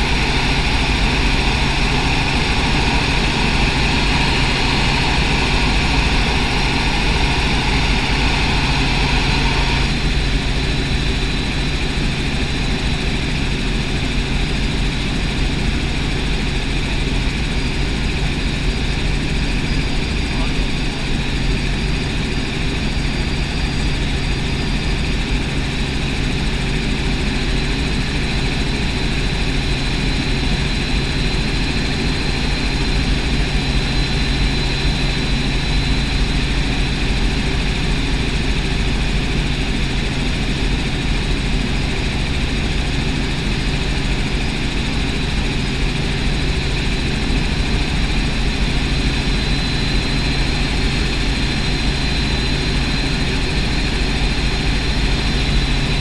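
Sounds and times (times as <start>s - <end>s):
high-pitched whine: 0.0s - 13.0s, 27.5s - 56.0s
helicopter engine and rotors droning: 0.0s - 56.0s.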